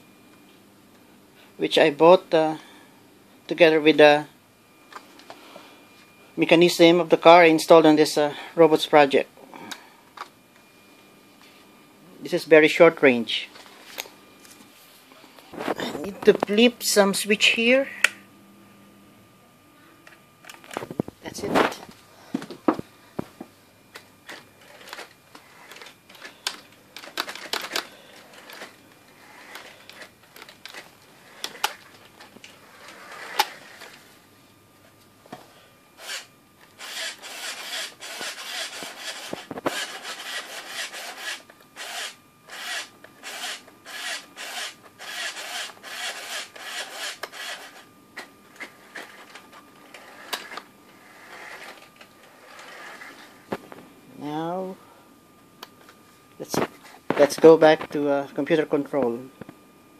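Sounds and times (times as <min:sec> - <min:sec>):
small electric motors whirring: 0:24.2 - 0:34.0, 0:36.0 - 0:47.9, 0:48.5 - 0:53.4.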